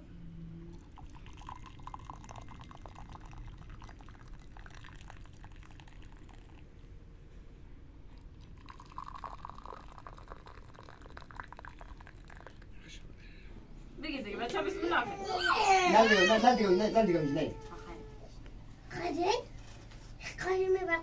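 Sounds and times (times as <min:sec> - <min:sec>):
liquid pouring and splashing: 0:00.8 - 0:06.7, 0:08.2 - 0:12.8.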